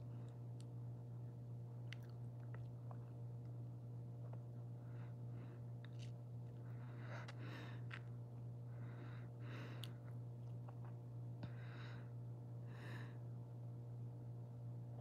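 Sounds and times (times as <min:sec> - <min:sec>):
steady low hum: 0:00.0 - 0:15.0
person breathing softly: 0:06.6 - 0:08.0, 0:08.7 - 0:10.0, 0:11.4 - 0:13.3.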